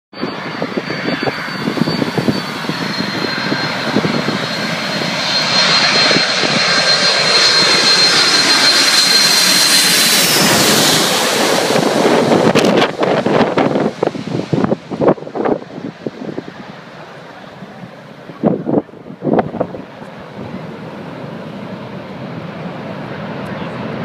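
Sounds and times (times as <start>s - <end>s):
jet engines whining: 0.1s - 24.0s
wind rumble on microphone: 0.2s - 6.9s, 10.2s - 16.7s, 18.2s - 20.8s.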